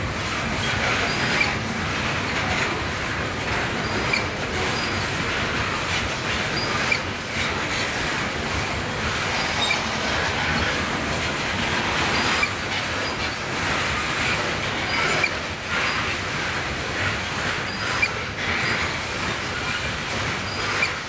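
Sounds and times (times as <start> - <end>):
steel wheels rolling on rail: 0.0 - 21.0
high-pitched wheel squeals: 9.4 - 10.8.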